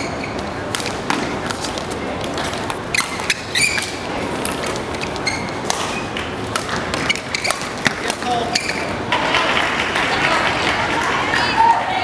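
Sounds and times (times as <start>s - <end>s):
shoes squeaking on floor: 0.0s - 9.1s
hall background noise: 0.0s - 12.0s
racket striking shuttlecock: 0.7s - 8.9s.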